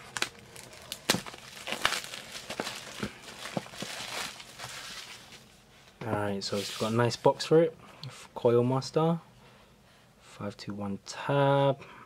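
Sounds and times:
plastic wrap crinkling: 0:00.0 - 0:05.6.

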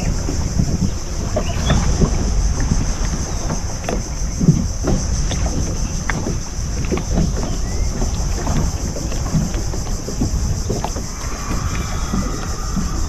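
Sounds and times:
outboard engine running: 0:00.0 - 0:13.0
water slapping against hull: 0:00.0 - 0:13.0
wind buffeting microphone: 0:00.0 - 0:13.0.

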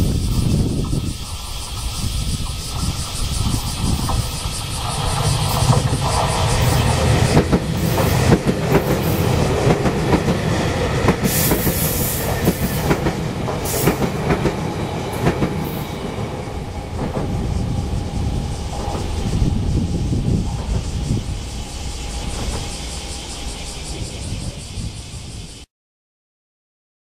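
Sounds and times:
train wheels clicking over rail joints: 0:00.0 - 0:25.3
train rumble: 0:00.0 - 0:25.7.

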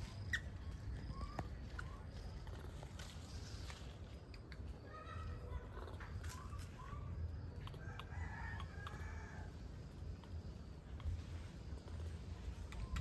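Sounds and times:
rooster crowing: 0:07.8 - 0:09.6.

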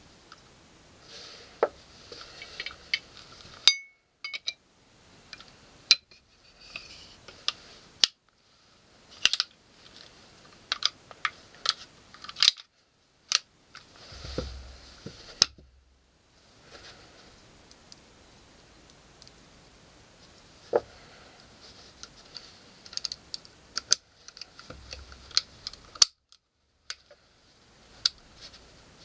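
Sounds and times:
metallic clicks of pistol parts: 0:11.6 - 0:12.7.

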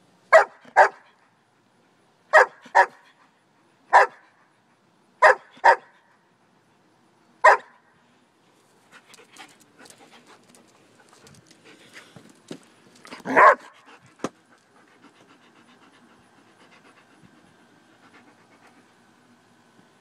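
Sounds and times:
dog barking: 0:00.3 - 0:01.1, 0:02.3 - 0:03.0, 0:03.9 - 0:04.2, 0:05.2 - 0:06.0, 0:07.4 - 0:07.8, 0:13.2 - 0:13.8.

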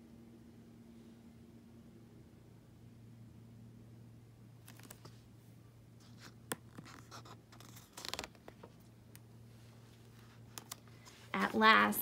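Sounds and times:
paper page rustling: 0:04.6 - 0:05.2, 0:06.0 - 0:08.8.

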